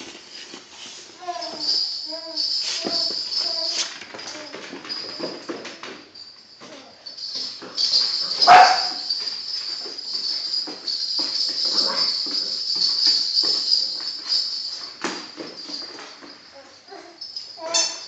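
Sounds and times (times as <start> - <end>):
jingling toy ball rolling: 1.2 - 18.0
paws tapping on wooden floor: 7.1 - 16.4.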